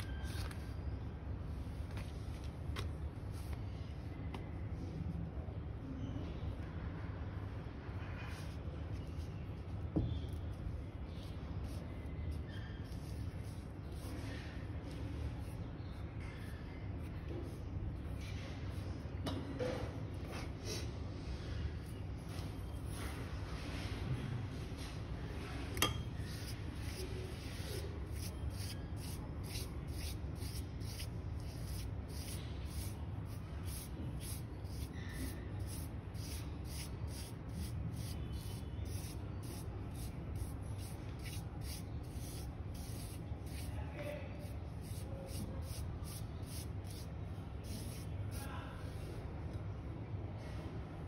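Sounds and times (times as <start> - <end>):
hands smoothing dough: 24.8 - 43.8, 44.4 - 48.5
spoon scraping paste on dough: 25.6 - 43.8, 44.4 - 48.5.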